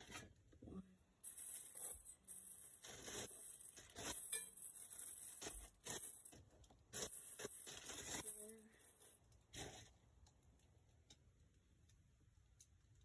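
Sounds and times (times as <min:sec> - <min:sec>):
packaging rustling: 0:07.0 - 0:08.5.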